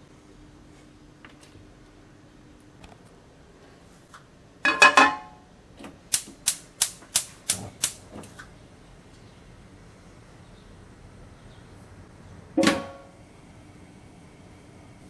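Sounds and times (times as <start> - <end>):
frying pan clattering on hob grate: 4.6 - 5.4
hob spark igniter clicking: 6.1 - 8.1.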